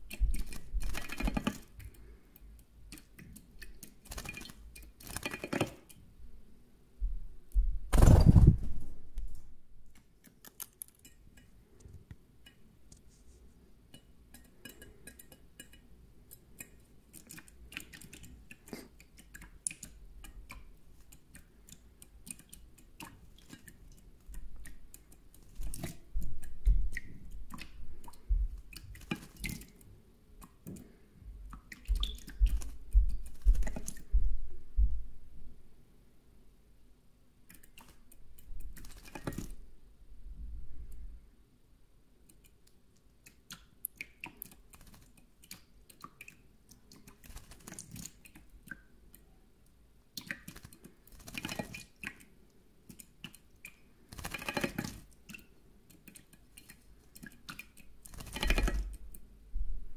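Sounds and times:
bird splashing in water: 3.7s - 5.8s, 38.7s - 39.5s, 50.2s - 52.2s, 56.6s - 58.9s.

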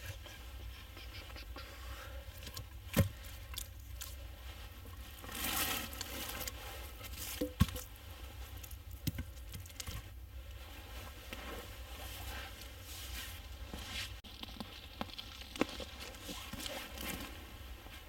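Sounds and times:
branches rustling scrape: 3.0s - 8.9s, 10.0s - 14.2s, 15.6s - 18.0s.

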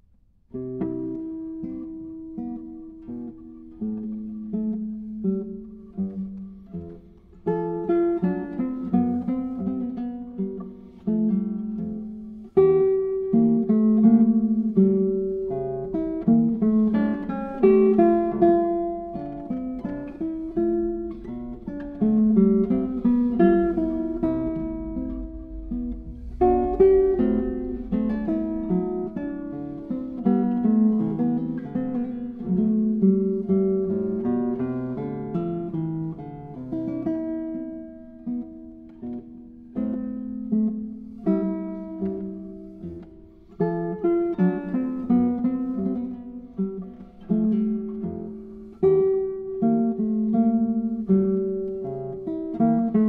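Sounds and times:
solo classical guitar: 0.0s - 53.0s.

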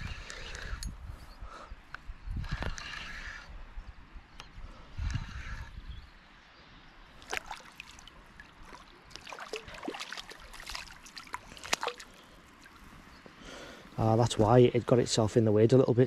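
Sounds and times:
fish splashing at water surface: 7.2s - 12.8s.

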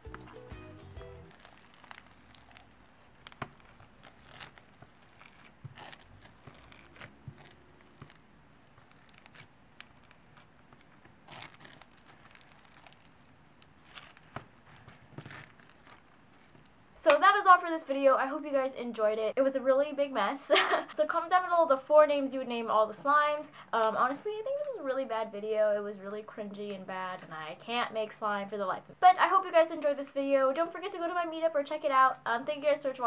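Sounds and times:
crackles of squeezed bead slime: 1.0s - 17.2s.

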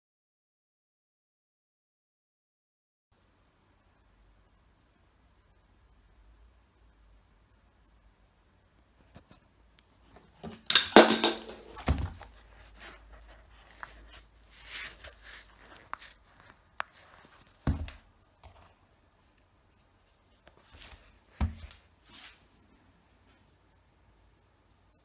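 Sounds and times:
sneaker handling rustling: 10.2s - 18.8s, 20.5s - 22.5s
dull thumps: 17.6s - 18.0s, 21.4s - 21.8s.

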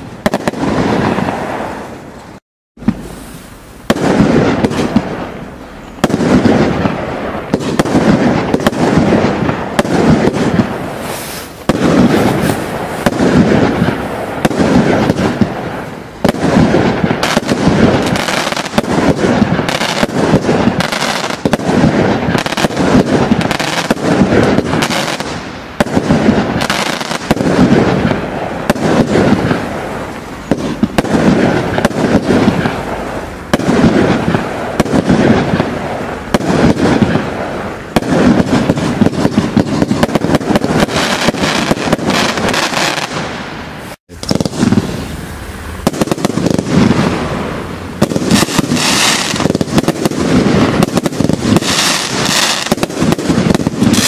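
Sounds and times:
firework stars bursting with crackle: 0.0s - 54.0s
firework launch thumps: 6.0s - 15.5s.

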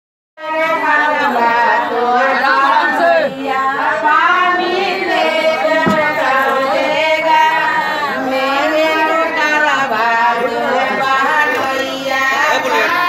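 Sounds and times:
people chattering: 0.4s - 13.0s
women singing in unison: 0.4s - 13.0s.

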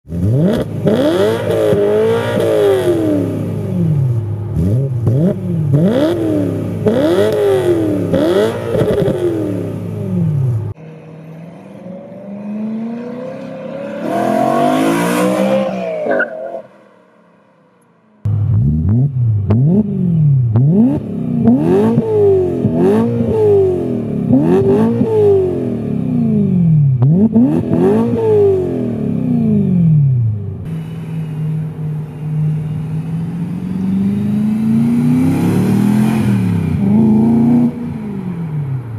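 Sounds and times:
car engine revving: 0.1s - 17.0s, 18.2s - 38.9s
car accelerating away: 0.2s - 16.7s, 33.0s - 38.9s.

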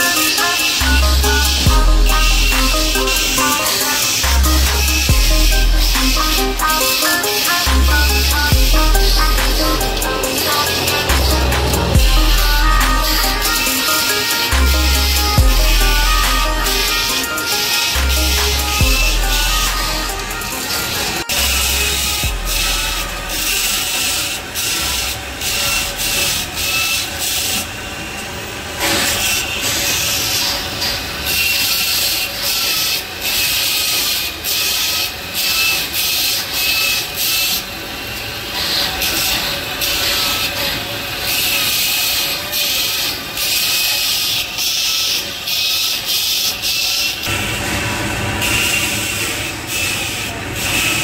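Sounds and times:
machine hum: 0.0s - 26.8s
pliers grinding on abrasive wheel: 0.0s - 27.7s.

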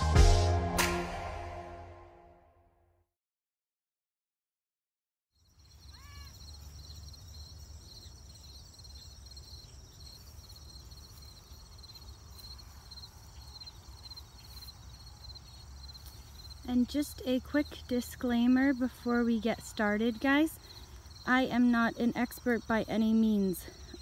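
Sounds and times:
insects trilling: 5.4s - 24.0s.

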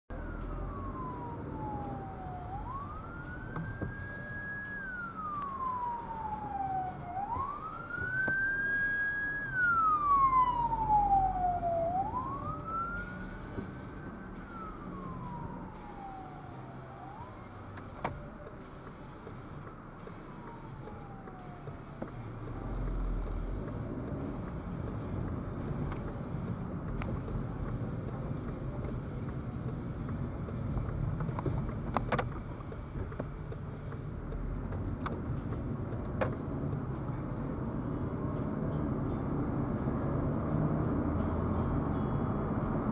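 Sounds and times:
emergency vehicle siren wailing: 0.1s - 18.8s, 19.6s - 26.8s
car engine and road noise: 0.1s - 42.9s.

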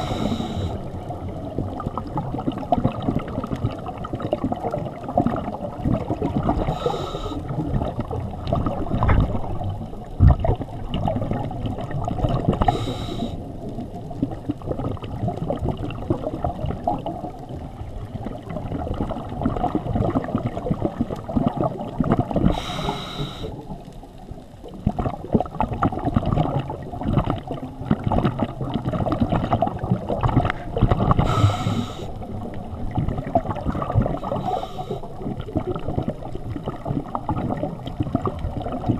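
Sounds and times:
regulator inhalation hiss: 0.0s - 0.8s, 6.7s - 7.5s, 12.6s - 13.4s, 22.5s - 23.6s, 31.2s - 32.2s, 34.2s - 35.1s
underwater bubbles gurgling: 0.0s - 38.9s.

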